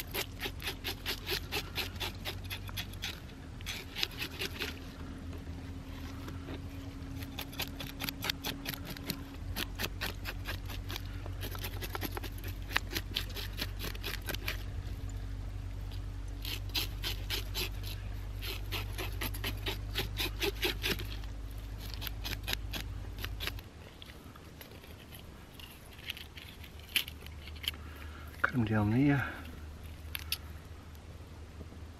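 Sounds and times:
knife sawing through fish: 0.0s - 4.8s, 7.2s - 14.6s, 16.4s - 21.2s
steady low hum: 0.0s - 31.9s.

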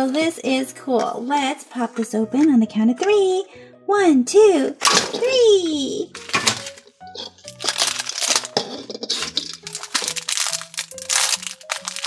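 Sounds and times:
light background music: 0.0s - 12.0s
plastic wrapper crinkling and tearing: 6.2s - 12.0s.

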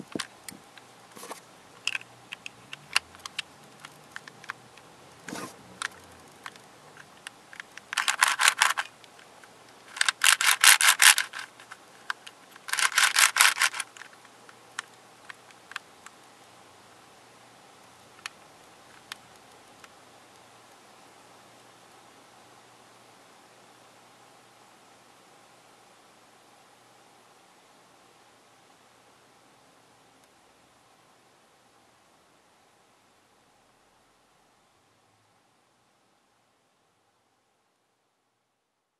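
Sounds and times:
plastic puzzle clicking: 1.8s - 4.6s, 5.8s - 14.2s.

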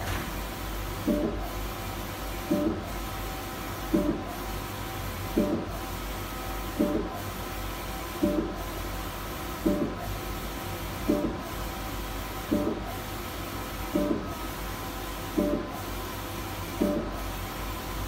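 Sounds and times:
hum of motors and fans: 0.0s - 18.0s.

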